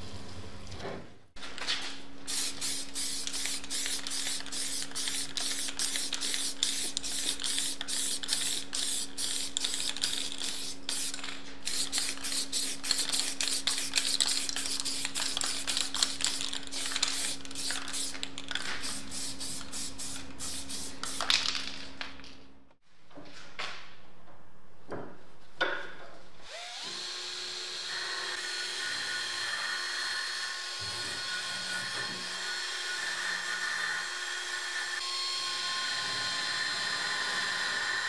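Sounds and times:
spray can hissing in puffs: 2.3s - 21.3s.

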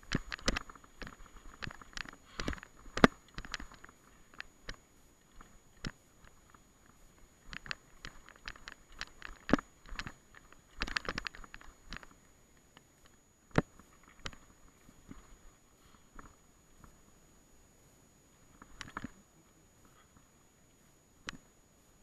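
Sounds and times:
bike rattling over rough ground: 0.0s - 17.0s.

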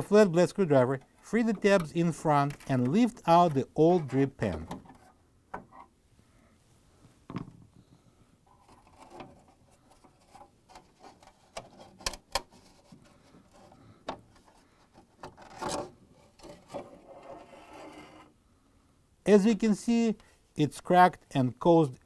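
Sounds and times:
plastic clicks and rubbing: 1.0s - 3.6s, 8.5s - 17.5s
thump: 7.3s - 7.6s.

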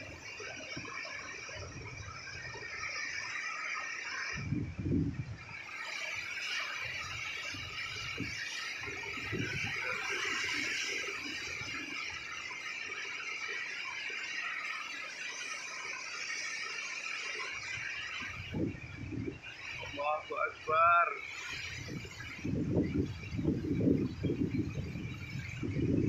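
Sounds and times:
wind gusts buffeting microphone: 0.0s - 3.5s, 4.2s - 13.1s, 17.5s - 26.0s
high hiss of wind: 0.0s - 26.0s
waves breaking: 5.7s - 22.3s.

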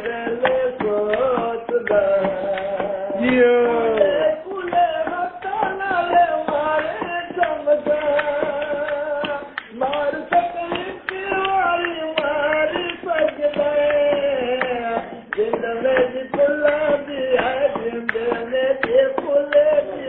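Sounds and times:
man singing held notes: 0.0s - 13.2s
hands beating a rhythm: 0.0s - 20.0s.

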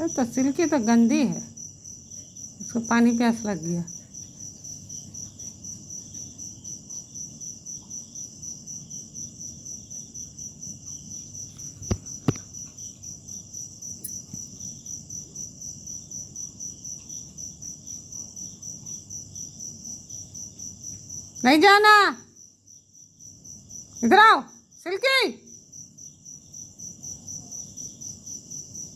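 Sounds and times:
crickets chirping: 0.0s - 28.9s.

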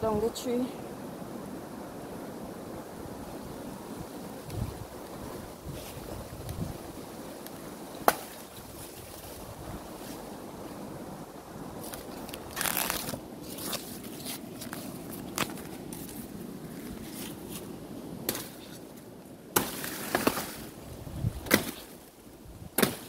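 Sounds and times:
dry leaves rustling and crackling: 11.8s - 22.2s.

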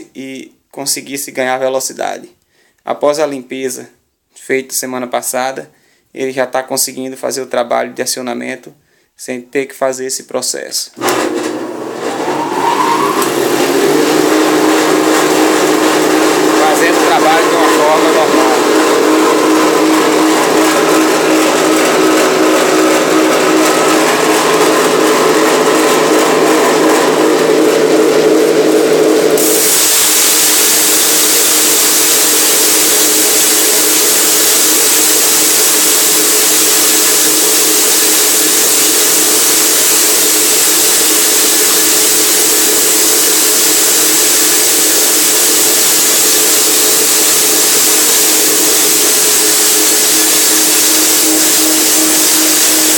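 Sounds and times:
forage grinder motor whirring: 11.0s - 52.9s.

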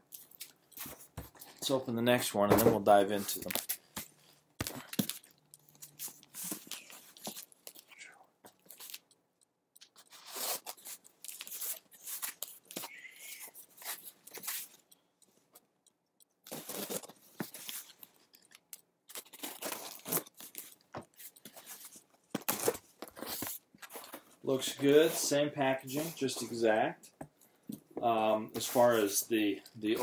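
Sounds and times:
tape tearing: 10.0s - 13.0s, 19.1s - 21.5s.

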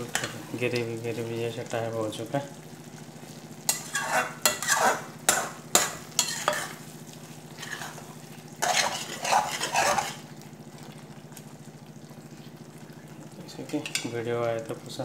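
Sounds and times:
spatula knocking pan: 3.7s - 6.7s
spatula scraping pan: 3.7s - 6.9s, 7.5s - 10.3s.

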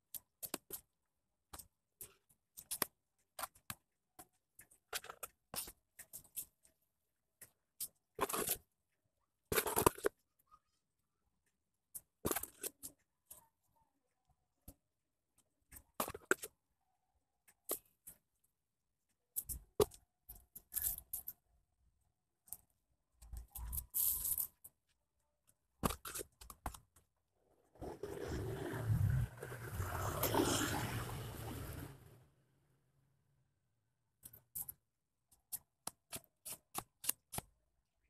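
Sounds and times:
putty scraper scraping wall: 27.8s - 32.0s.

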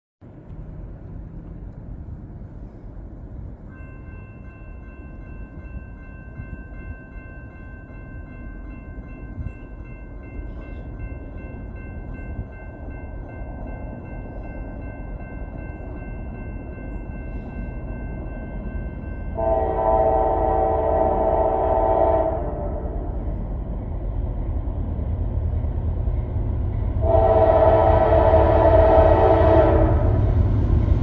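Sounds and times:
distant freight train rumble: 0.2s - 31.0s
train horn chord: 19.3s - 23.4s, 27.0s - 30.4s.

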